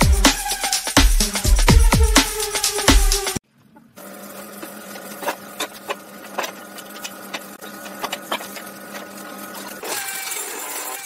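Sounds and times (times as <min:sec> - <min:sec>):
small electric motor humming: 0:07.0 - 0:11.0.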